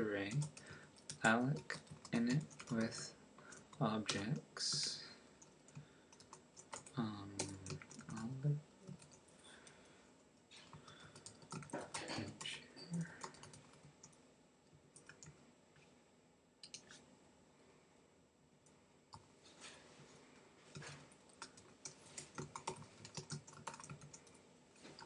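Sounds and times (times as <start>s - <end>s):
low voice: 3.8s - 5.1s, 6.9s - 8.6s, 11.8s - 13.2s.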